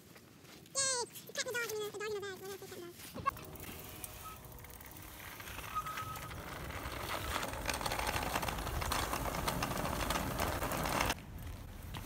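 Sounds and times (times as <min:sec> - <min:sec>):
wind: 0:00.0 - 0:12.0
road rumble: 0:02.3 - 0:12.0
bicycle freewheel ticking: 0:03.3 - 0:11.2.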